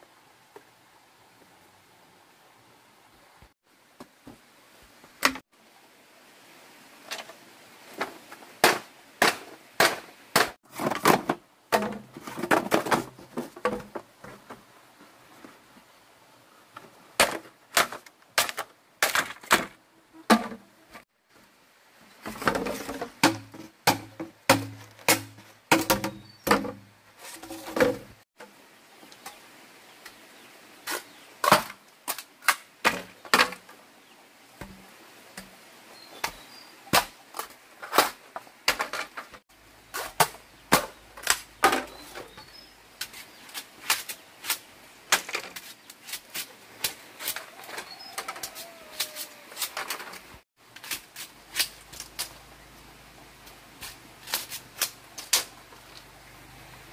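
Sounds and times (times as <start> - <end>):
knife chopping bamboo: 23.2 - 26.8.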